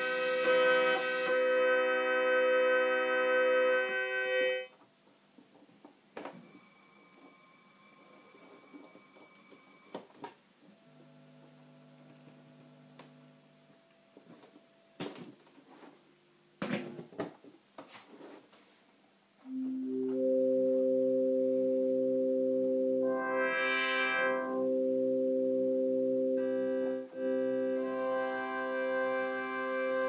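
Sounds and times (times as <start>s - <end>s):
synth chord: 0.0s - 4.7s, 19.4s - 30.0s
faint steady pair of tones: 19.4s - 30.0s.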